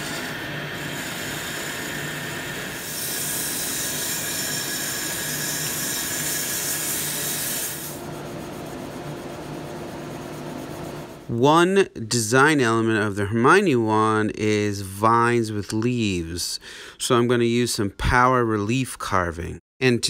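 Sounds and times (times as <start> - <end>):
tool cutting wood on lathe: 0.0 - 8.0
sandpaper hissing on spinning wood: 0.0 - 8.4
lathe motor hum: 0.0 - 11.3.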